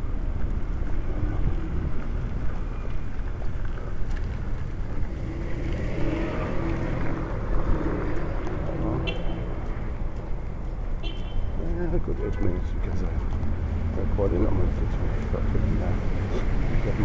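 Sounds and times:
wind rumble on microphone: 0.0 - 9.0
vehicle engine droning: 0.0 - 11.0
street traffic: 0.0 - 17.0.

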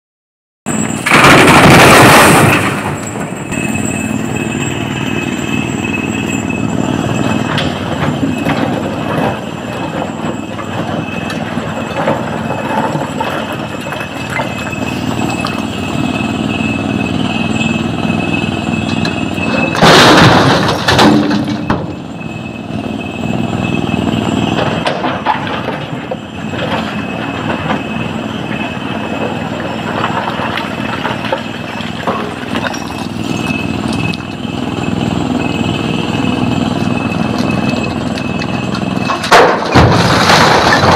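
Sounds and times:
high-pitched whine: 0.7 - 39.4
excavator engine under load: 0.7 - 40.9
rock crashing into truck body: 19.6 - 21.6, 39.2 - 40.9.

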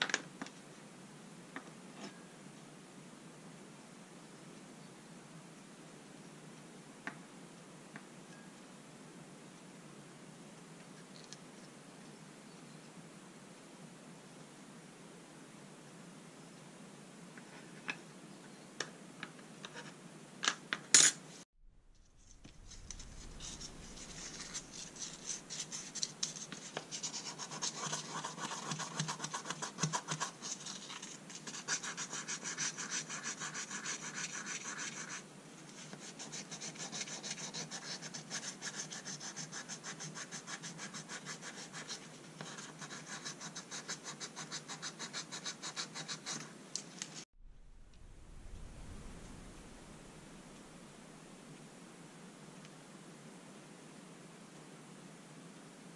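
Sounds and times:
abrasive cloth scratching metal: 22.0 - 26.6.

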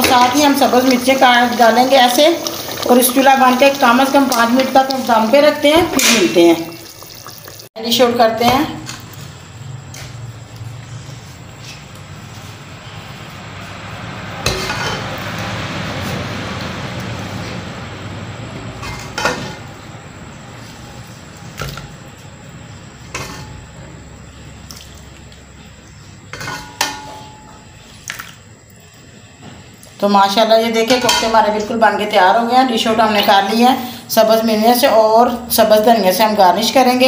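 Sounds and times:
gravy pouring and stirring: 0.0 - 7.7
metal ladle clinking on pot: 26.4 - 27.6.

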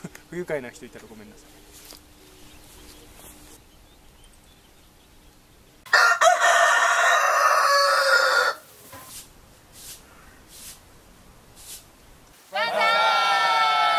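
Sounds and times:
rooster crowing: 5.9 - 8.7, 12.5 - 13.9.

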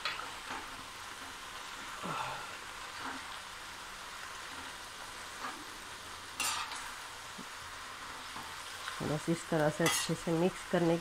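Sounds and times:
vegetables sizzling in oil: 0.0 - 11.0
metal spatula stirring in pan: 4.3 - 7.0, 9.6 - 11.0.

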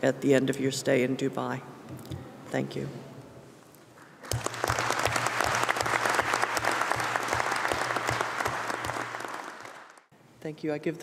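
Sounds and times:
audience applauding: 4.0 - 10.1.

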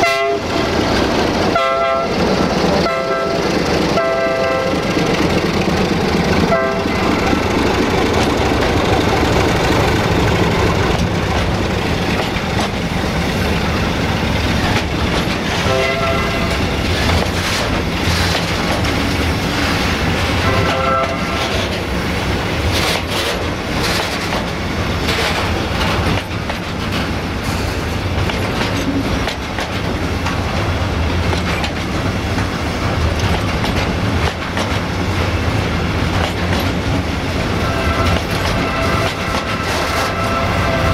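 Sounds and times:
freight train rumbling past: 0.0 - 40.9
wheels clattering over rail joints: 4.9 - 13.1, 22.6 - 27.2, 28.2 - 40.9.

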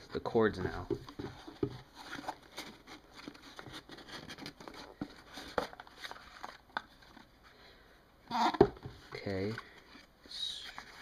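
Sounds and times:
cable rustling: 0.0 - 7.5.

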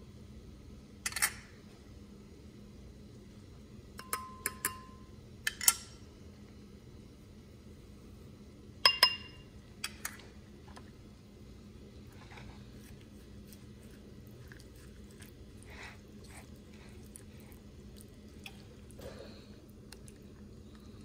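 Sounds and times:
dishes clinking against glass bowl: 4.0 - 6.0, 8.8 - 10.1.

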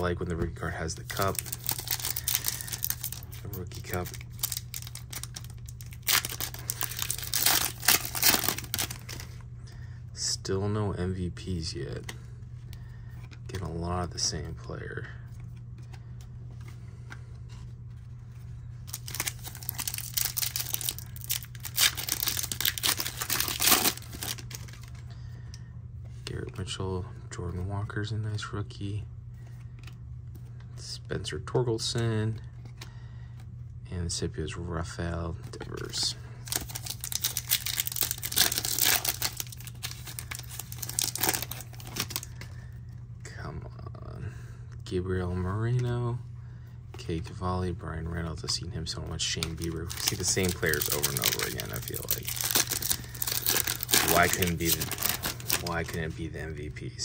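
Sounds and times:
card pack wrapper tearing and crinkling: 0.8 - 9.4, 18.9 - 25.0, 36.4 - 42.5, 49.3 - 56.2.

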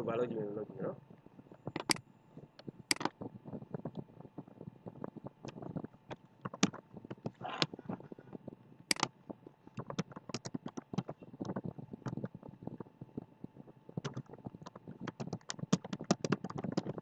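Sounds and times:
keyboard keys clicking: 1.7 - 2.0, 2.9 - 3.1, 6.4 - 7.4, 8.9 - 9.1, 9.8 - 12.4, 14.0 - 17.0.

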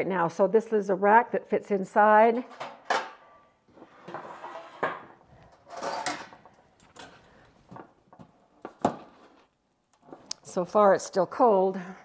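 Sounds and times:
metal clinks and knocks: 5.7 - 7.4.

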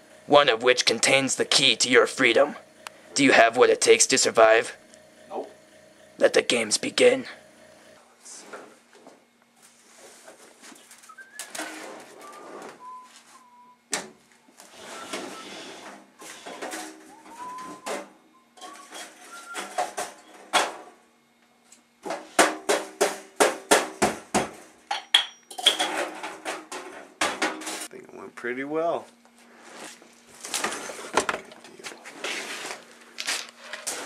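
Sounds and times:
objects rustling and clattering: 8.4 - 21.0, 24.2 - 27.9, 29.2 - 34.0.

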